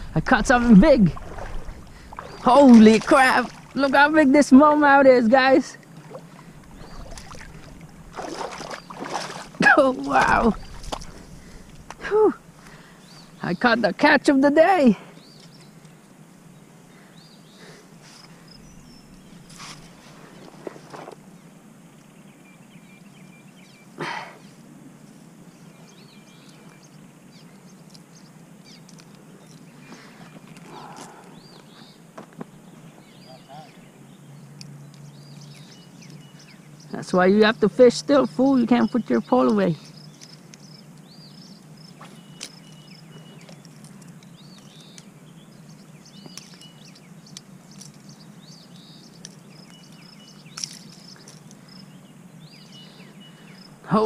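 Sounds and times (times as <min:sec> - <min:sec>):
outdoor background noise: 0:00.0 - 0:54.0
small birds chirping: 0:00.0 - 0:54.0
faint bird chirps: 0:38.8 - 0:54.0.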